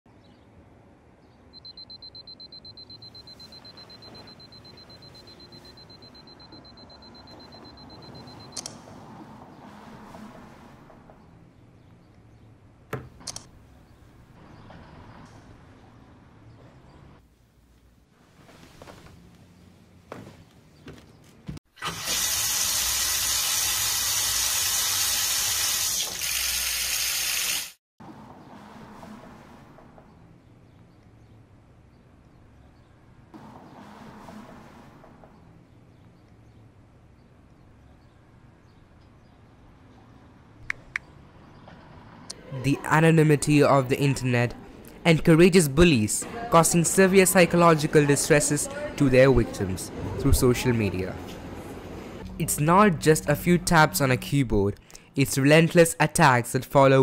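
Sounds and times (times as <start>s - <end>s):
phone alarm beeping: 1.5s - 8.7s.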